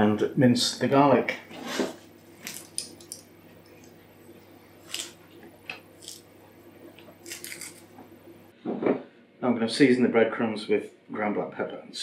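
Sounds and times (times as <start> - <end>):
garlic skin crackling: 2.3 - 4.0, 4.7 - 8.0.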